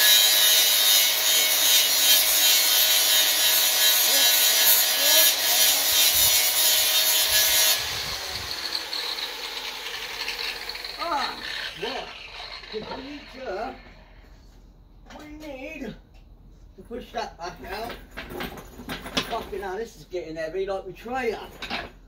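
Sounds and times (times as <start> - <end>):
angle grinder grinding: 0.0 - 14.3.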